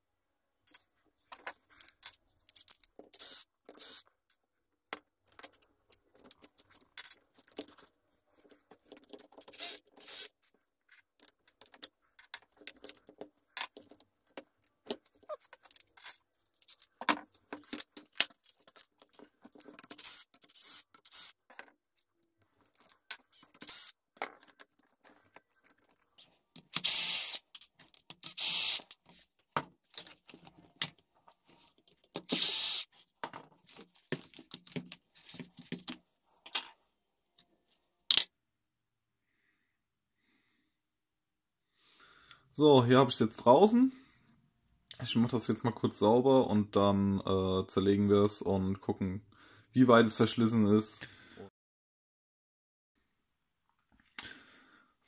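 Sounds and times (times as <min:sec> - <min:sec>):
cordless drill whining: 0:03.2 - 0:04.0, 0:09.6 - 0:10.3, 0:20.0 - 0:21.3, 0:23.6 - 0:23.9, 0:26.8 - 0:27.4, 0:28.3 - 0:28.8, 0:32.3 - 0:32.9
plastic parts clattering: 0:08.7 - 0:26.9.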